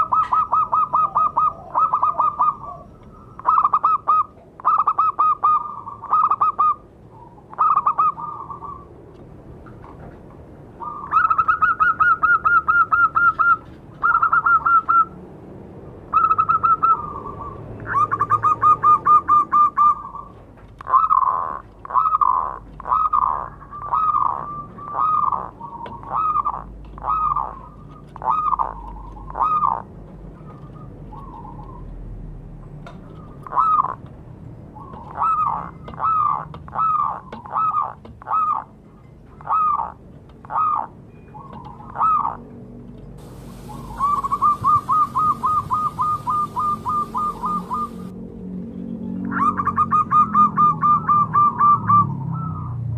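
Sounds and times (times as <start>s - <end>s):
dove cooing: 0.0s - 9.0s, 10.8s - 15.2s, 16.1s - 32.0s, 33.1s - 34.1s, 34.7s - 38.7s, 39.4s - 42.5s, 43.2s - 48.1s.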